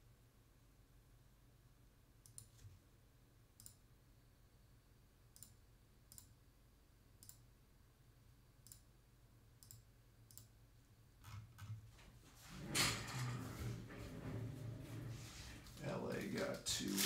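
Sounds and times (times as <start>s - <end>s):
low steady hum: 0.0s - 17.0s
computer mouse clicks: 2.2s - 2.6s, 3.6s - 3.8s, 5.4s - 6.4s, 7.2s - 7.5s, 8.6s - 8.9s, 9.6s - 10.5s.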